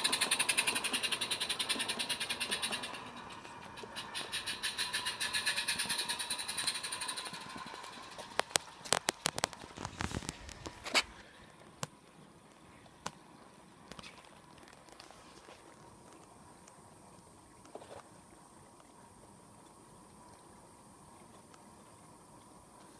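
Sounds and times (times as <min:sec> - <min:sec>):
model train wheels clicking: 0:00.0 - 0:11.1.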